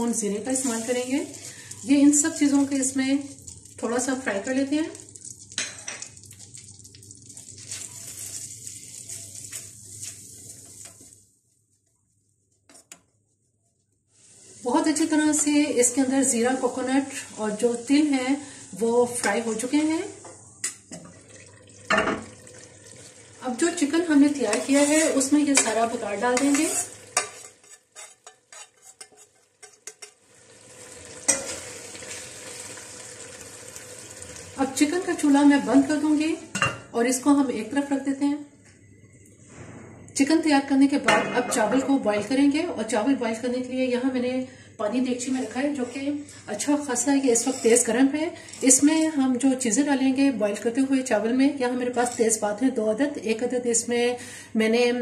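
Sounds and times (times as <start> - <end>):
metal spoon scraping a pan: 0.0 - 3.6, 7.6 - 11.2, 12.6 - 13.4, 14.2 - 20.8, 23.6 - 30.2, 31.2 - 32.2, 45.1 - 49.3, 51.9 - 52.4
spices sizzling in butter: 0.0 - 13.5, 14.1 - 20.9, 23.0 - 38.1, 45.0 - 50.0
metal utensils scraping pans: 24.3 - 30.2, 31.3 - 31.8, 41.0 - 42.2, 46.9 - 49.1.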